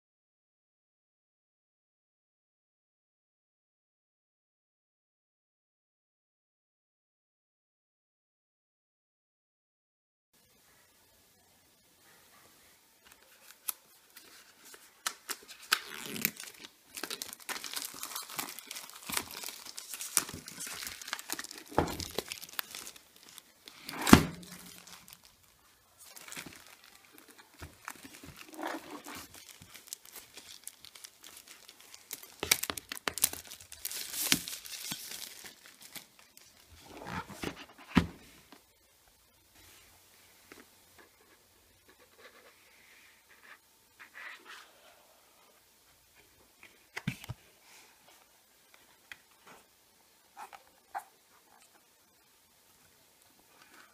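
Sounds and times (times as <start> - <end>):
plastic shrink-wrap crinkling: 13.1 - 37.5.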